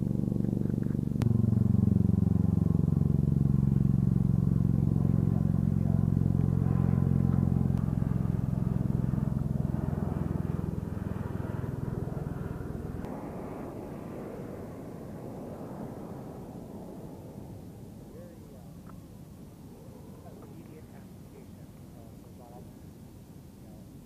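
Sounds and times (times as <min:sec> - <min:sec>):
tracked vehicle engine running: 0:00.0 - 0:13.1.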